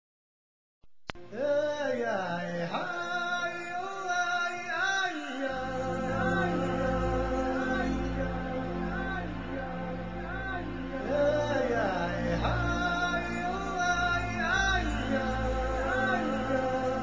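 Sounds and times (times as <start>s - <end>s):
click: 1.0s - 1.2s
person singing: 1.2s - 17.0s.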